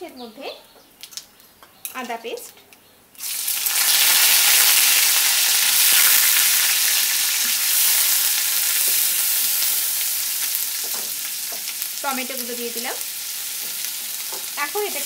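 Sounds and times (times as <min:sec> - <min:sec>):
paste sizzling in hot oil: 0:03.2 - 0:15.0.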